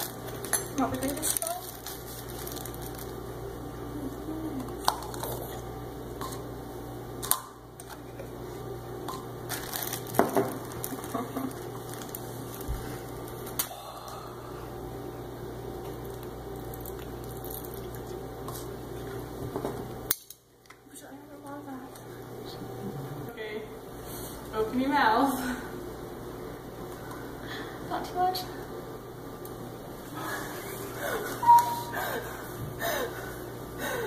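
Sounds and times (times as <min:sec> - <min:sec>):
plastic bag rustling: 0:00.0 - 0:03.2, 0:09.5 - 0:13.5
steady low hum: 0:00.0 - 0:34.0.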